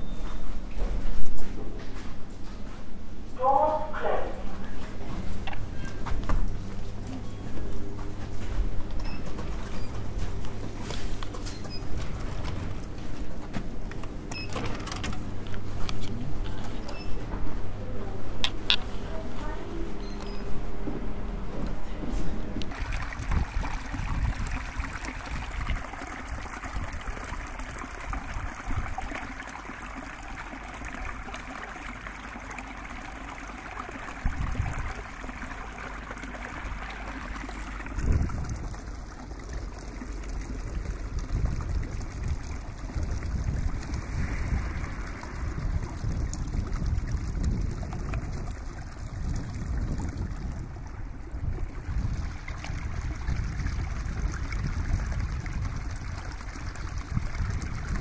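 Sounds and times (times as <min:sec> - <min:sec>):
low rumble: 0:40.8 - 0:56.0.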